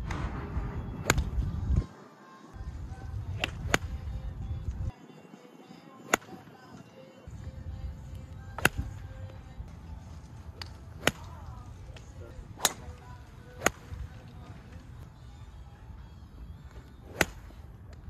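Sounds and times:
golf clubs striking balls: 3.0s - 4.3s, 8.1s - 9.5s, 10.2s - 15.0s.

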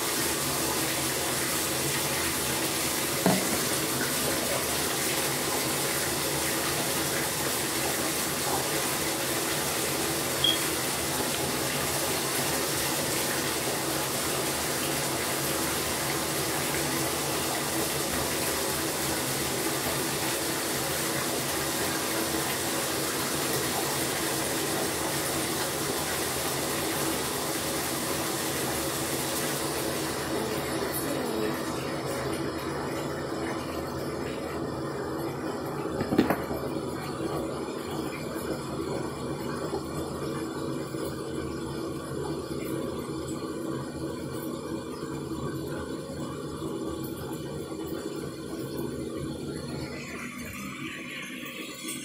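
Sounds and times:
bathtub tap running: 0.1s - 13.6s, 35.2s - 38.1s
short knock: 3.2s - 3.7s.

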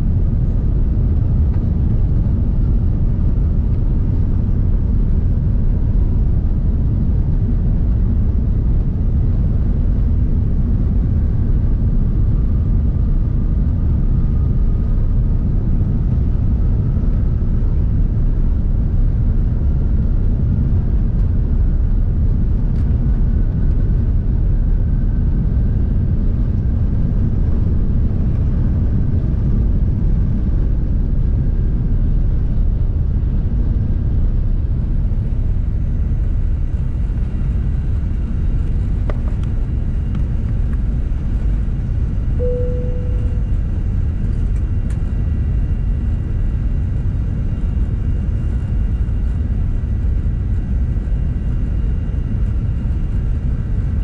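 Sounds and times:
jet engines deep rumble: 0.0s - 54.0s
jet engine whine rising: 34.3s - 45.8s.

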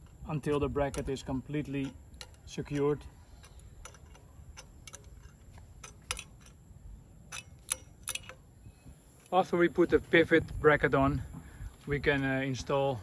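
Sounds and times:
wrench clicking on metal: 0.0s - 6.6s, 7.3s - 9.4s.

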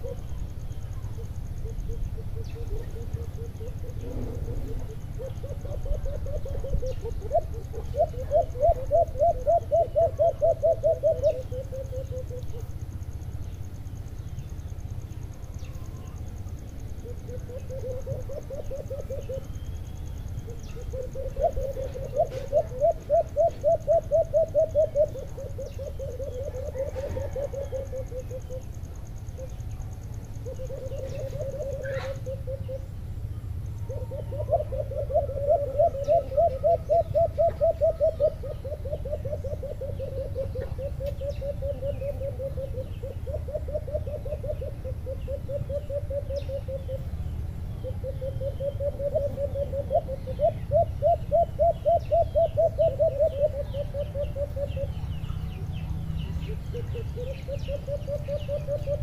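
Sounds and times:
doves hooting: 0.0s - 59.0s
small birds chirping: 0.0s - 59.0s.

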